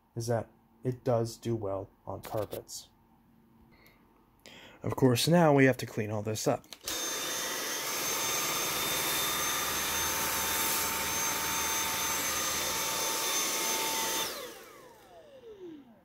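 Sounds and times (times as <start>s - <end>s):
vacuum cleaner motor whine: 6.8s - 16.0s.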